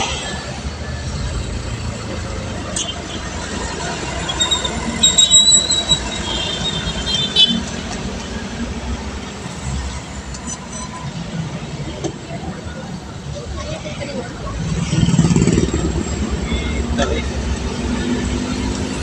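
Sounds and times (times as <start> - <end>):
high-pitched squeal: 2.8 - 7.6
motorcycle road and wind noise: 6.0 - 19.0.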